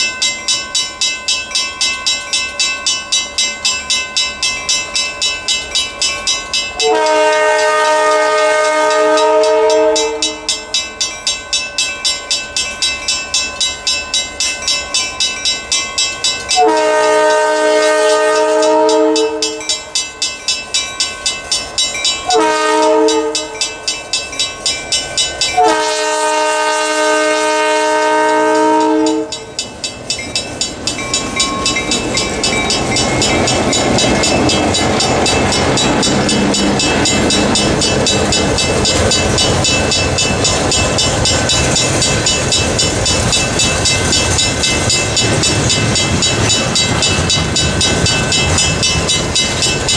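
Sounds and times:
crossing signal bell ringing: 0.0 - 49.9
locomotive engine and wheels passing: 0.0 - 49.9
locomotive air horn blasts: 6.8 - 10.5, 16.6 - 19.7, 22.3 - 23.7, 25.6 - 29.4.

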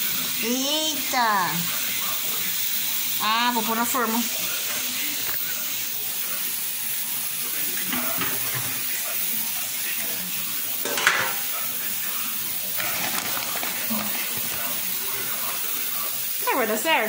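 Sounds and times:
steady hissing noise: 0.0 - 17.0
handling sounds on counter: 12.8 - 15.7.

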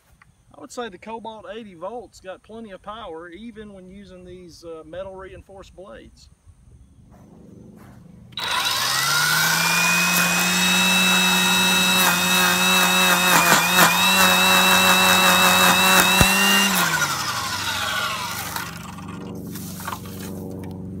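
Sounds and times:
cordless trimmer motor whining: 8.3 - 20.8
trimmer blades knocking on stems: 8.4 - 20.1.

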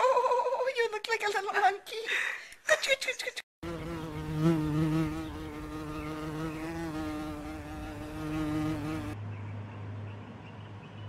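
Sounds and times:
flying insect buzzing: 3.6 - 9.2.

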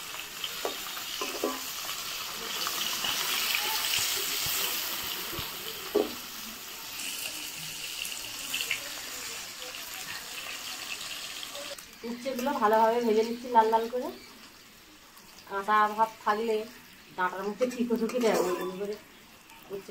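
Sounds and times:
oil sizzling in a wok: 0.0 - 19.9
metal spatula knocking pan: 0.6 - 1.7.

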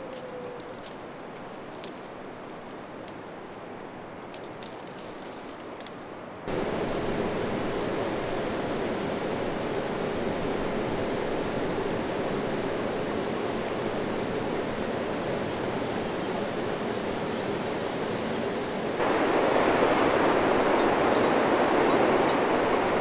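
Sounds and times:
steady rushing noise: 6.5 - 23.0.

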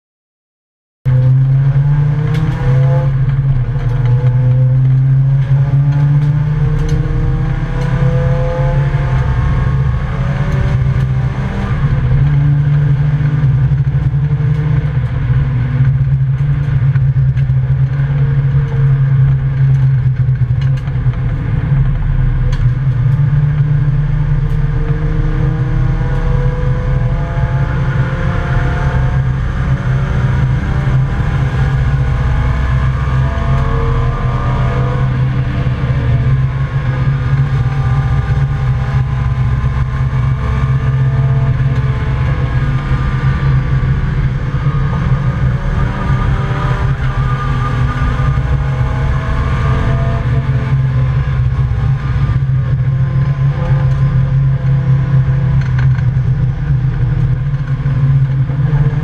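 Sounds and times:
race car engine revving: 1.1 - 59.0.

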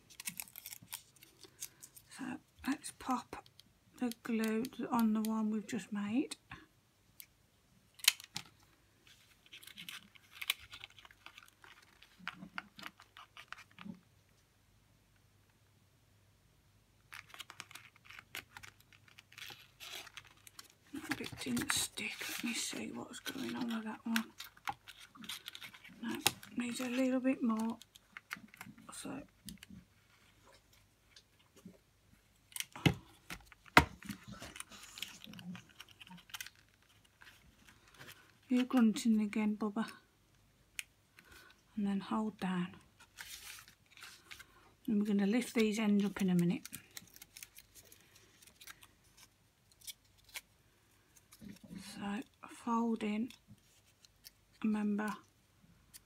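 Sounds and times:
stiff paper rustling and crinkling: 0.0 - 2.8, 8.0 - 14.0, 17.1 - 31.6, 32.4 - 39.1, 42.9 - 44.6, 45.2 - 52.0.

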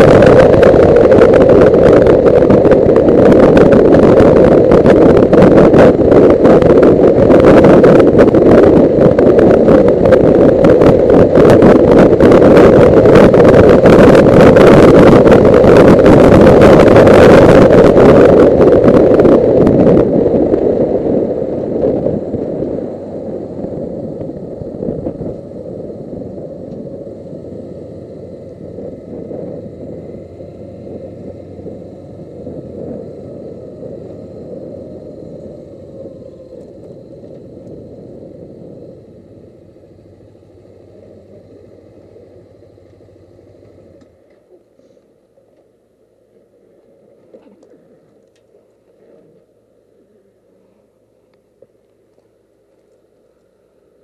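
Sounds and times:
loud wind rush: 0.0 - 44.2
motorcycle engine: 0.0 - 44.7
road noise: 0.0 - 54.0.

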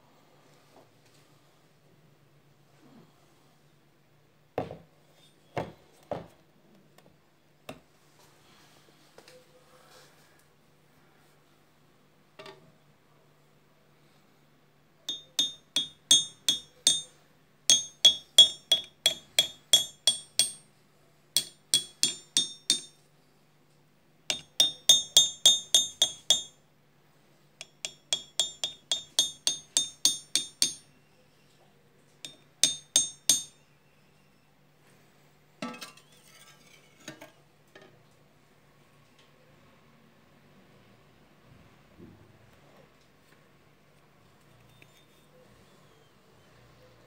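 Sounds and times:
knife tapping on metal: 15.1 - 20.7, 21.4 - 23.0, 24.3 - 26.6, 27.6 - 30.9, 32.2 - 33.6.

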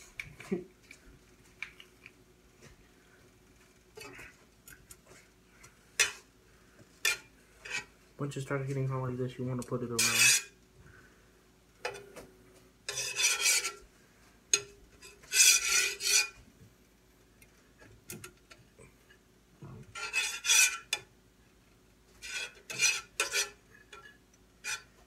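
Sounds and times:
spatula scraping frying pan: 3.9 - 6.3, 7.0 - 8.0, 10.0 - 10.6, 12.8 - 13.9, 14.5 - 16.4, 19.8 - 21.1, 22.2 - 25.0.

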